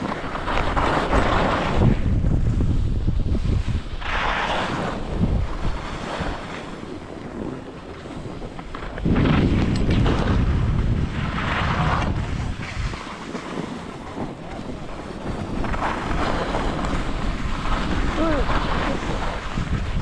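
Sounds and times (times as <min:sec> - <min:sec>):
skis scraping packed snow: 0:00.0 - 0:20.0
wind buffeting microphone: 0:00.0 - 0:20.0.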